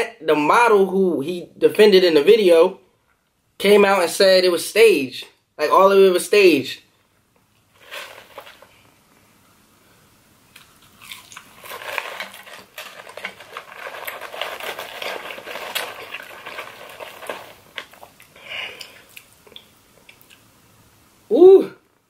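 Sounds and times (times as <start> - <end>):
paper carton crinkling: 7.8 - 8.8, 11.1 - 18.2
eating sounds: 10.5 - 20.5.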